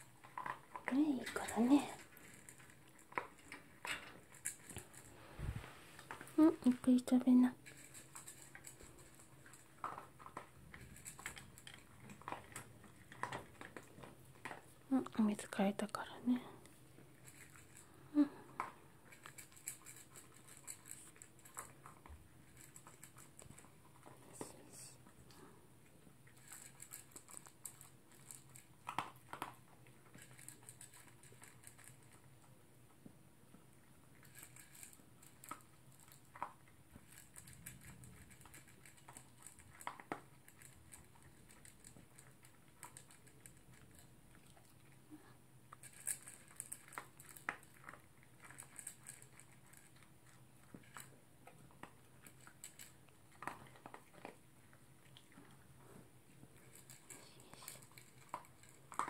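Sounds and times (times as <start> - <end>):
dog crunching dry kibble: 0.0 - 5.3, 5.9 - 59.0.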